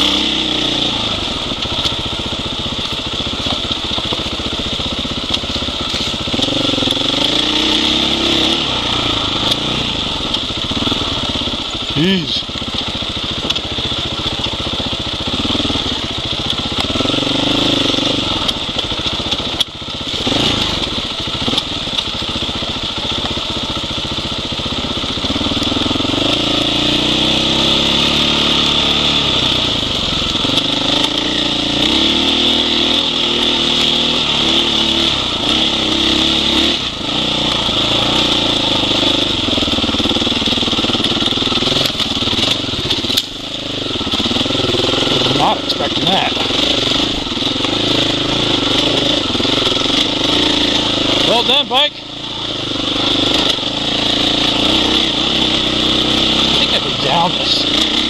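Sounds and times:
dirt bike engine revving: 0.0 - 58.0.

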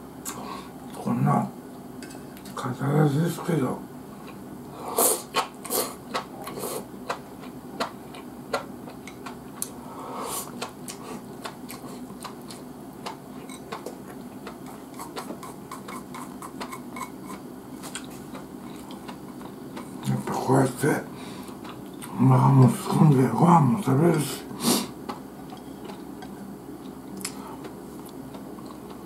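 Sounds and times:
chewing noises: 5.2 - 9.8, 10.4 - 20.4, 25.0 - 29.0.

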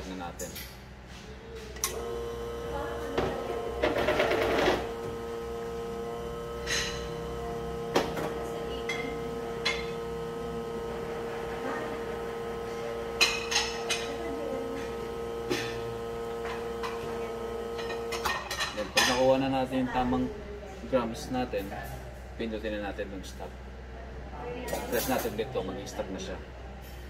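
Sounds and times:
espresso machine pump humming: 1.7 - 20.2.

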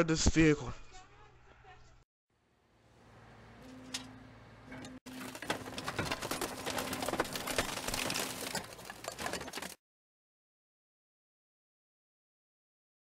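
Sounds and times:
rapid clicking and crackling: 5.1 - 9.8.

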